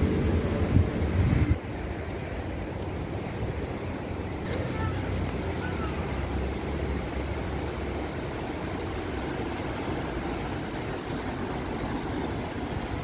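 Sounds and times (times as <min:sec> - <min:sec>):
wind buffeting microphone: 0:00.0 - 0:01.7
river water pouring over weir: 0:00.0 - 0:13.0
traffic on bridge: 0:00.0 - 0:13.0.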